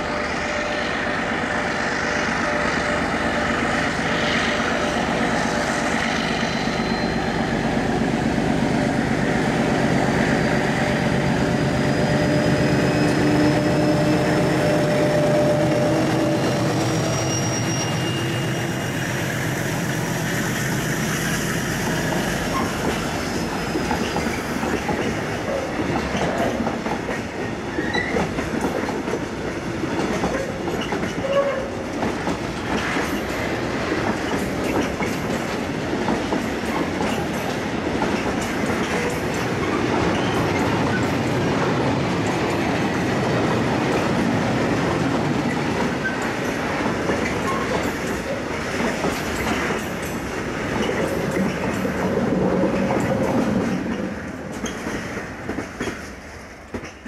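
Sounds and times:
diesel locomotive passing: 0.0 - 57.0
train wheels clacking over rail joints: 21.7 - 57.0.

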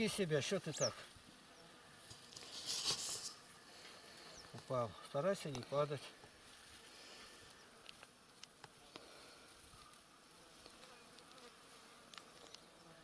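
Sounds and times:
flying insects buzzing: 0.0 - 13.0.

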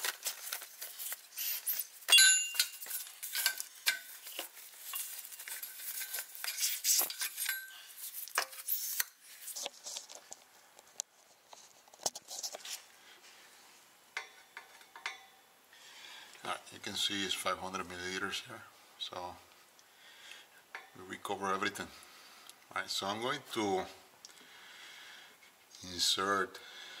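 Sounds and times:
tools and small parts clinking: 0.0 - 10.4, 14.2 - 15.4.

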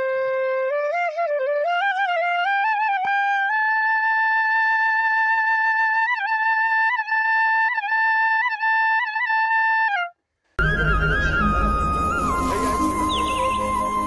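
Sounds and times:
solo wind instrument melody: 10.6 - 14.0.

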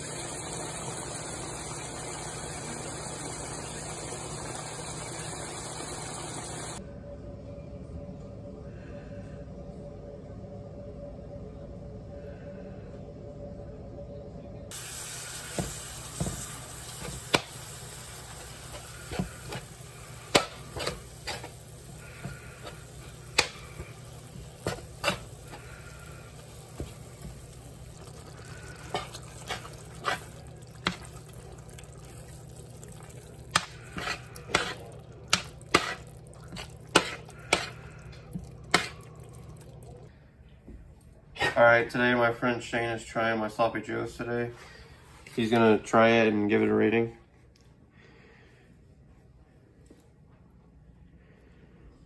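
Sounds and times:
meat sizzling in a skillet: 0.0 - 6.8, 14.7 - 37.6
metal spoon scraping a pan: 18.6 - 25.9, 28.6 - 31.1, 33.5 - 37.9, 38.7 - 39.0.

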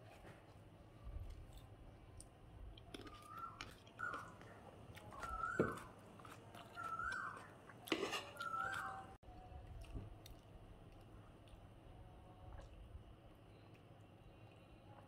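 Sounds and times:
chewing: 0.0 - 11.8
spoon scraping on a plate: 7.9 - 8.8.

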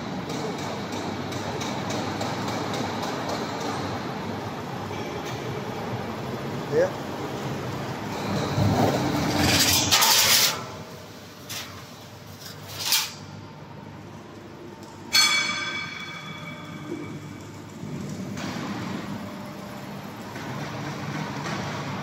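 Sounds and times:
grinding metal shear: 8.2 - 10.8, 12.4 - 13.3
sharp metallic knocks: 15.1 - 17.2
ringing metal clang: 15.1 - 17.4.

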